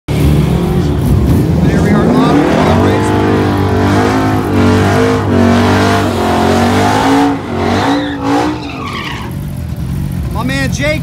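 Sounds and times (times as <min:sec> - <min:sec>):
car engine revving hard: 0:00.1 - 0:09.4
tyres squealing: 0:02.3 - 0:09.4.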